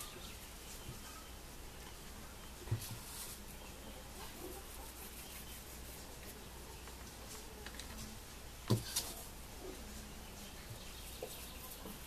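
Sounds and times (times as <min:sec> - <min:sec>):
hands rubbing dough: 0:02.8 - 0:06.4, 0:10.9 - 0:12.0.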